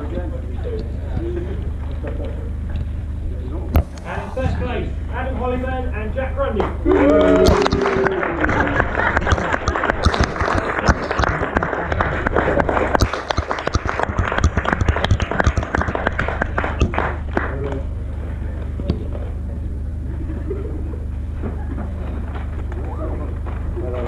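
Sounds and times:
steady low hum: 0:00.0 - 0:24.0
small crowd clapping: 0:06.6 - 0:17.9.

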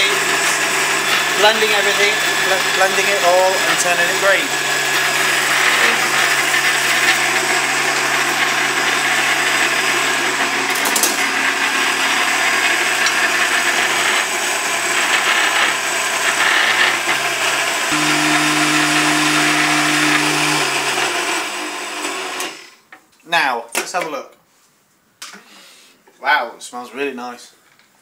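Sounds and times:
jug blender motor running: 0:00.0 - 0:22.8.

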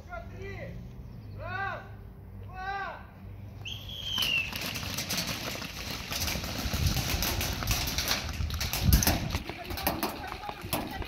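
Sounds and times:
gear rattling: 0:04.4 - 0:11.0.

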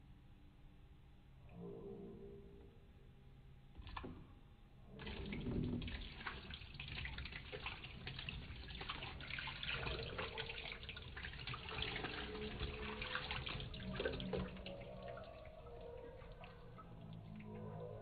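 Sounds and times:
water pouring into a steel sink: 0:04.9 - 0:18.0.

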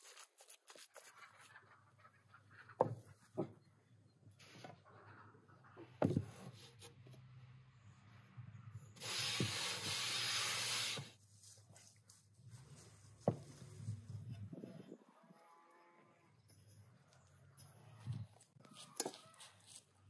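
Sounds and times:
hand sweeping flour on wood: 0:09.0 - 0:14.1.

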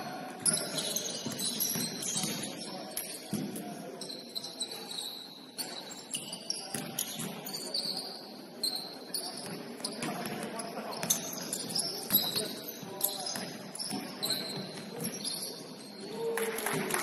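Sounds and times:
basketball shoes squeaking: 0:00.0 - 0:16.1
basketball bouncing: 0:01.2 - 0:02.5.

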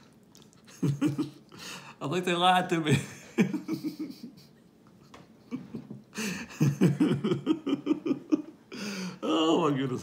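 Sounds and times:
man laughing: 0:00.7 - 0:01.4, 0:02.9 - 0:04.6, 0:05.4 - 0:08.9.

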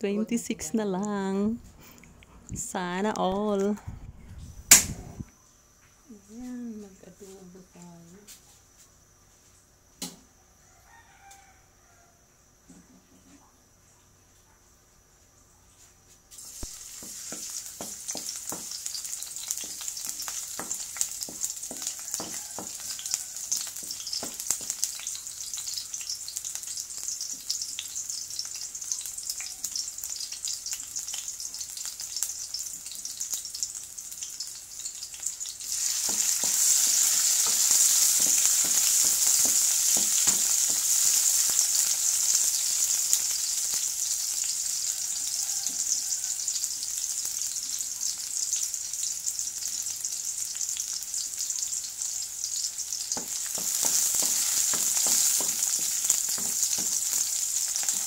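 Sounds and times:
garlic sizzling in hot oil: 0:16.3 - 0:58.0
spatula scraping metal wok: 0:35.7 - 0:42.8, 0:53.2 - 0:58.0.

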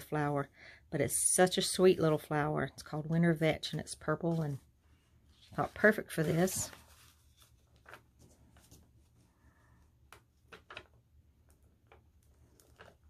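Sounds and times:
paper cards tapping and rustling: 0:05.4 - 0:09.0, 0:10.1 - 0:13.0.

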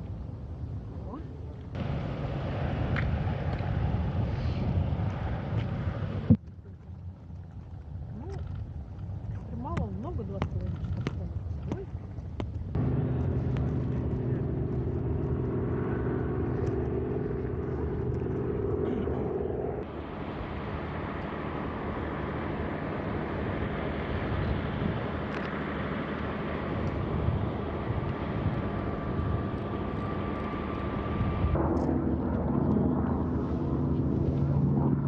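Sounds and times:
diesel locomotive engine humming: 0:01.8 - 0:06.3, 0:12.8 - 0:35.0.

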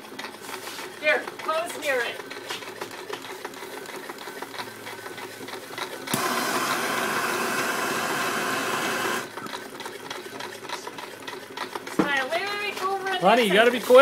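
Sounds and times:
small engine clattering: 0:00.0 - 0:06.4, 0:09.0 - 0:14.0
loud steady hiss: 0:06.1 - 0:09.3.

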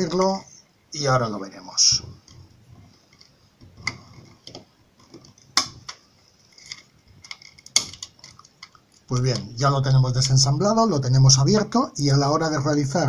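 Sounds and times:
plastic clips clicking and snapping: 0:06.6 - 0:09.5.

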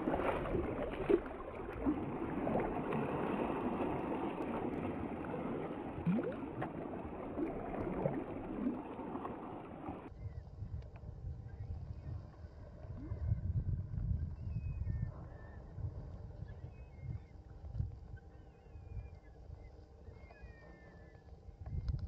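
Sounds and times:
water splashing around kayak: 0:00.0 - 0:10.1.

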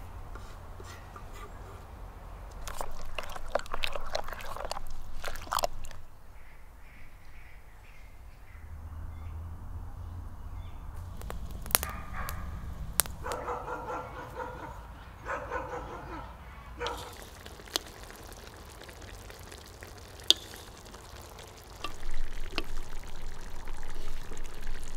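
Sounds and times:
spoon stirring wet salad: 0:02.5 - 0:06.0, 0:16.8 - 0:24.9
animal calls: 0:11.8 - 0:17.5.

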